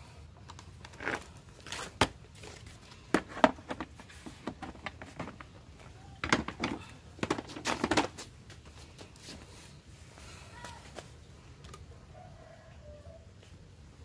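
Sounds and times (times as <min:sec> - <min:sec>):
plastic box clattering: 0:00.9 - 0:05.6, 0:06.2 - 0:08.2.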